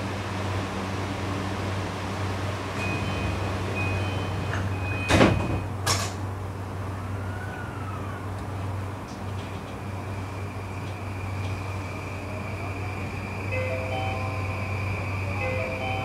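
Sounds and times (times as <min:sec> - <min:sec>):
train low hum: 0:00.0 - 0:16.0
train doors shutting thud: 0:02.7 - 0:06.3
door-closing tone: 0:02.8 - 0:05.7.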